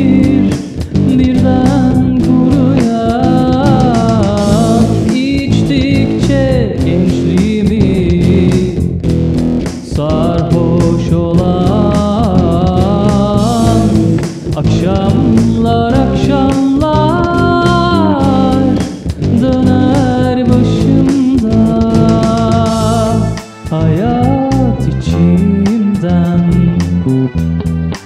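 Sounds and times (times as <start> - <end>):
person singing slow melody: 0.0 - 9.0, 9.9 - 27.5
drum machine beat: 0.0 - 27.2
bass guitar: 0.0 - 28.0.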